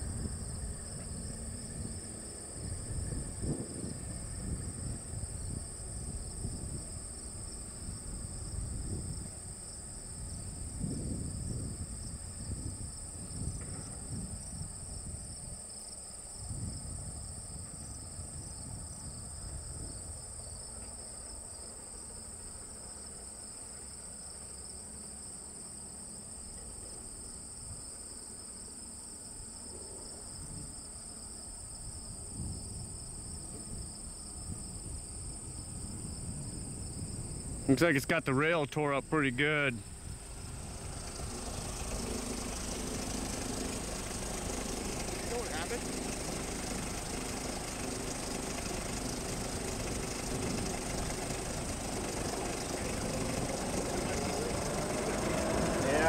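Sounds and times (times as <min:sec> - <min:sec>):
low uneven rumble: 0:00.0 - 0:15.3, 0:32.3 - 0:56.0
insects chorus: 0:00.0 - 0:56.0.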